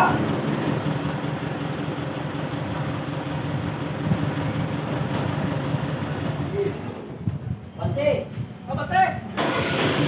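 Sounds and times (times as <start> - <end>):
truck engine idling: 0.0 - 7.2.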